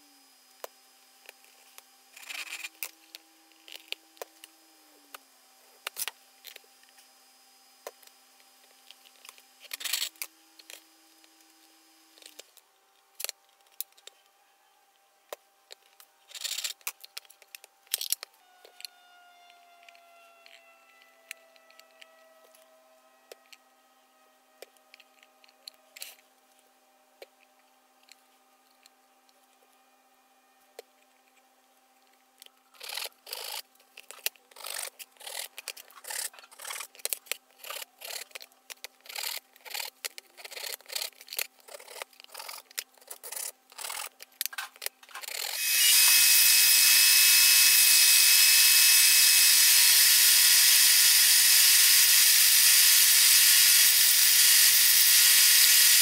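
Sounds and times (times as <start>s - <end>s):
belt sander running: 45.5s - 56.0s.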